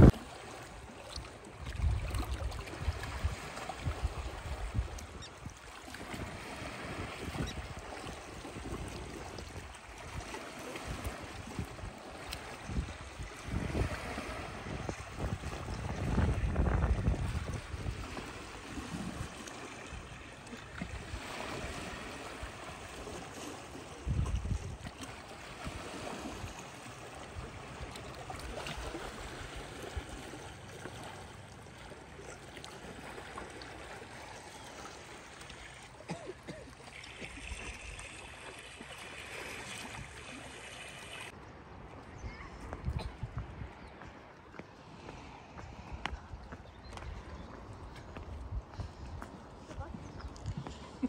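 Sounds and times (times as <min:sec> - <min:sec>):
small waves lapping on rocks: 0:00.0 - 0:51.0.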